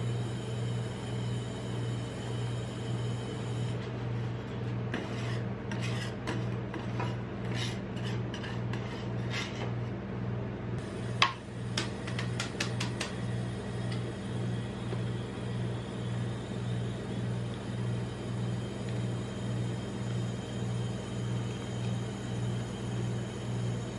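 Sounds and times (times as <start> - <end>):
metal spatula scraping on steel: 4.2 - 9.9.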